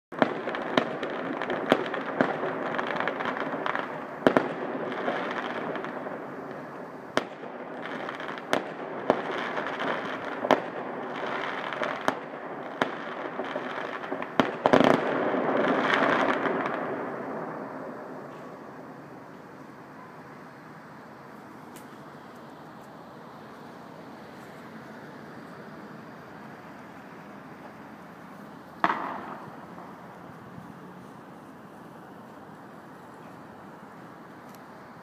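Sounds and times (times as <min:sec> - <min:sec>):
fireworks bangs: 0:00.1 - 0:22.4, 0:23.4 - 0:33.3
distant fireworks din: 0:00.1 - 0:35.0.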